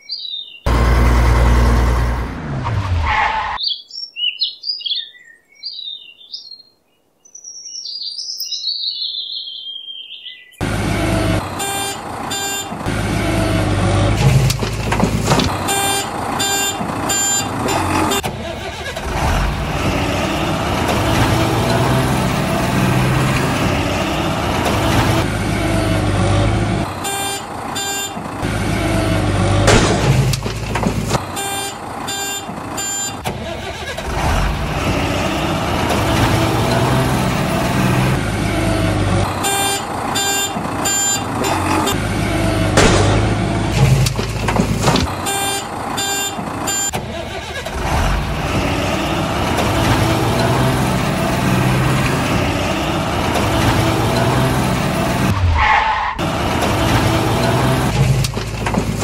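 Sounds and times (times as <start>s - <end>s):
diesel engine running: 0.7s - 3.0s, 10.6s - 59.0s
reversing beeps: 46.0s - 47.0s.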